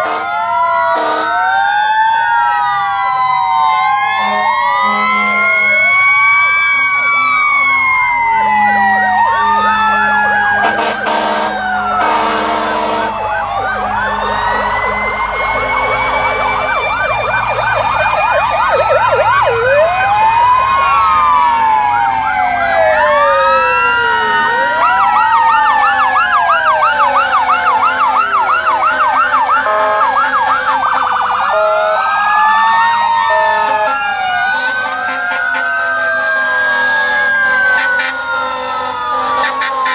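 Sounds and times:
fire engine sirens wailing: 0.0 - 39.9
horn blasts: 1.0 - 1.3, 4.2 - 5.8, 8.4 - 16.8, 26.9 - 31.1, 37.6 - 39.9.

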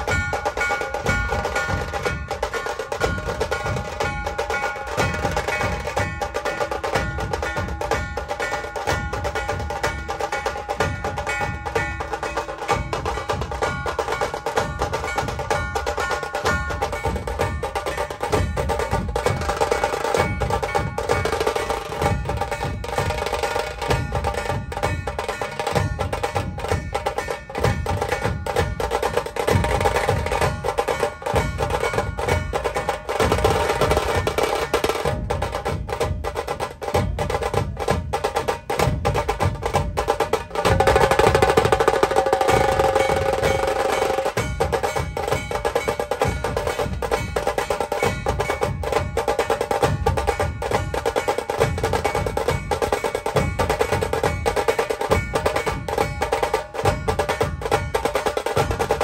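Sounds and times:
fast dense drumming: 0.0 - 59.0.

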